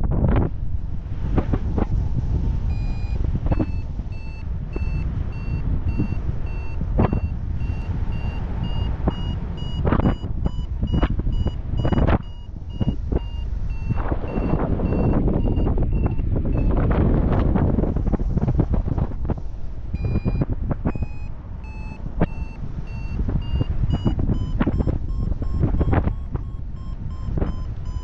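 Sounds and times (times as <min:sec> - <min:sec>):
wind gusting over microphone: 0:00.0 - 0:28.0
variometer beeping: 0:02.7 - 0:17.0, 0:20.0 - 0:28.0.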